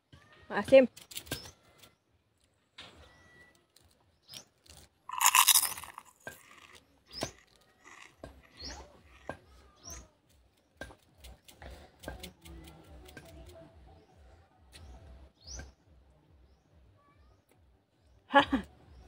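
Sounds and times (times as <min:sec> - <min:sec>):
chewing raw leaves: 0:03.6 - 0:09.3
mouth clicks and smacks: 0:05.1 - 0:09.3.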